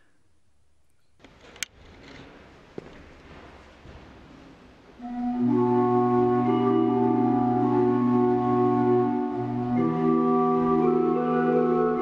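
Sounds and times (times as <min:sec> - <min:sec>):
pipe organ chords: 0:05.0 - 0:12.0.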